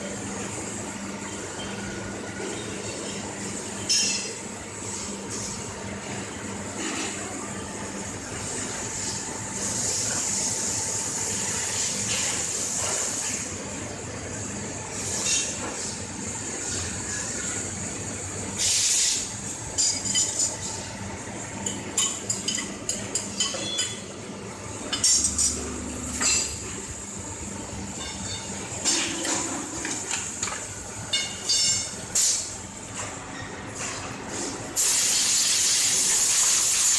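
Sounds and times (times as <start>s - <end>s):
compressed air hiss: 18.6s - 19.3s, 34.8s - 36.9s
machinery noise: 22.5s - 30.8s.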